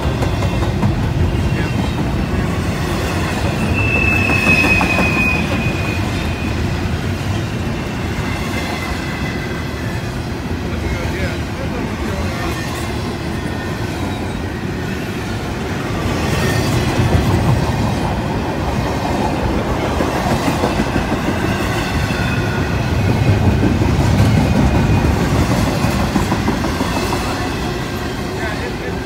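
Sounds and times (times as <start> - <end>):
steel wheels rumbling on rails: 0.0 - 29.0.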